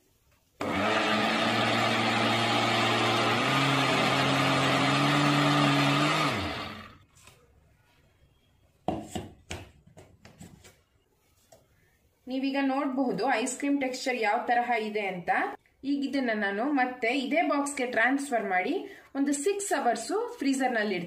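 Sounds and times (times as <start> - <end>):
mixer grinder motor whine: 0.6 - 7.0.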